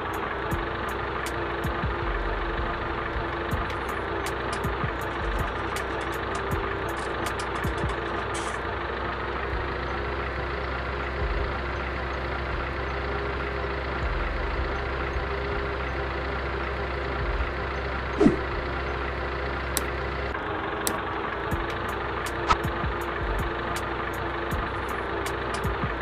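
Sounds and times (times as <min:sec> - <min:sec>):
engine idling: 0:00.0 - 0:26.0
sharp sound with pitch sweep: 0:18.2 - 0:18.6.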